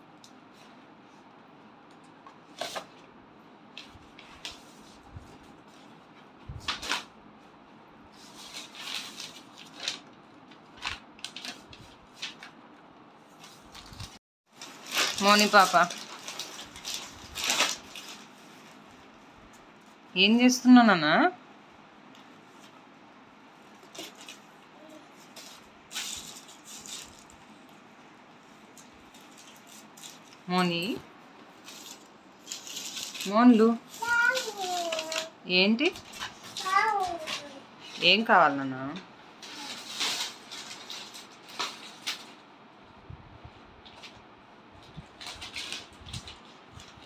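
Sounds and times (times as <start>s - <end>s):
paper rustling and flapping: 3.7s - 7.1s, 8.1s - 12.6s, 13.2s - 19.7s, 23.7s - 27.7s, 33.9s - 35.3s, 36.0s - 37.6s, 44.8s - 47.0s
plastic bags crinkling: 13.3s - 18.9s, 25.2s - 27.8s, 28.4s - 30.5s, 31.4s - 35.3s, 39.4s - 42.5s, 45.0s - 47.0s.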